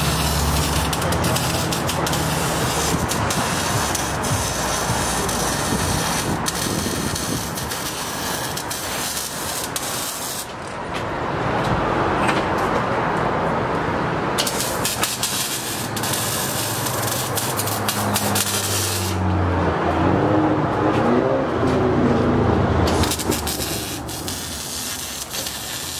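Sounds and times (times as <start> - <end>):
welding crackling and hissing: 0.0 - 10.6, 14.4 - 19.2, 22.9 - 25.9.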